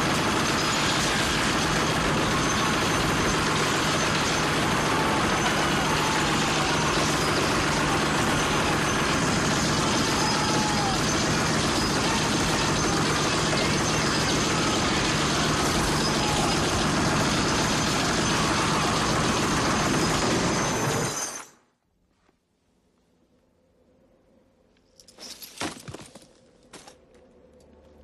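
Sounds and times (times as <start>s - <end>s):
heavy machine gun burst: 0.0s - 21.2s.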